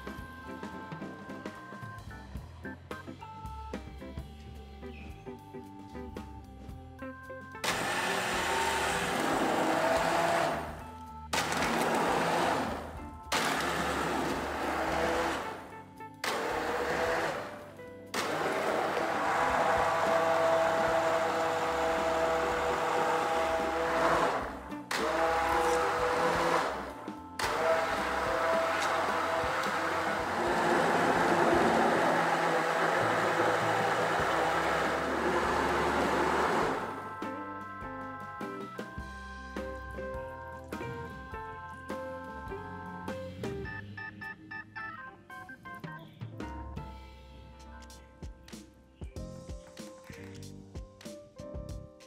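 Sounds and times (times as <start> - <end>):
background music: 0.0 - 52.0
electric blender running: 7.6 - 10.8, 11.4 - 37.2.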